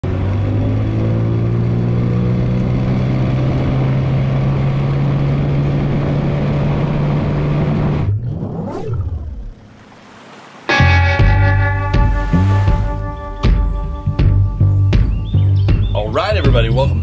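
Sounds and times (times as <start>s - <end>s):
outboard motor running: 0.0s - 15.7s
sweeping whoosh: 8.0s - 14.0s
water rushing along hull: 8.7s - 14.4s.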